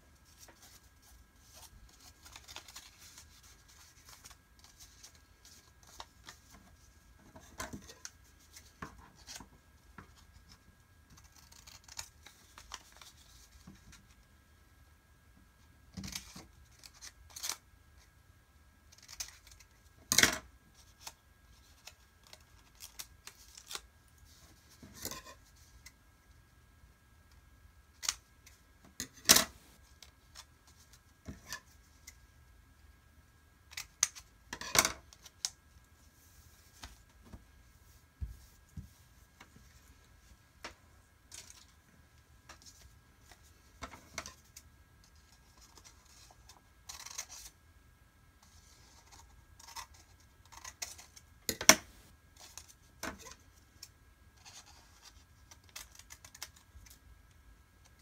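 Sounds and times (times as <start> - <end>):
paper rustling: 0.2 - 9.4
scissors snipping paper: 11.1 - 13.0, 18.9 - 19.7.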